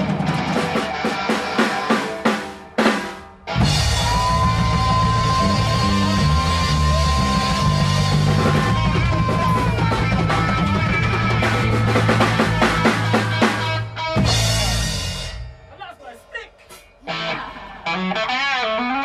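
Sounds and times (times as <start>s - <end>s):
rock band playing: 0.0s - 19.0s
bass notes: 3.3s - 15.7s.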